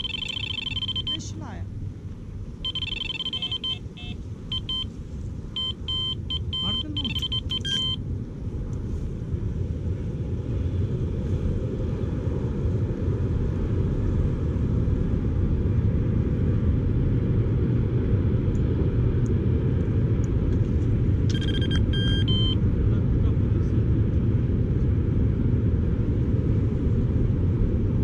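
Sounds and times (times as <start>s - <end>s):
fishing bite alarm beeps: 0.0s - 1.3s, 2.7s - 4.9s, 5.6s - 8.0s, 21.3s - 22.6s
wind rumbling on microphone: 0.0s - 28.0s.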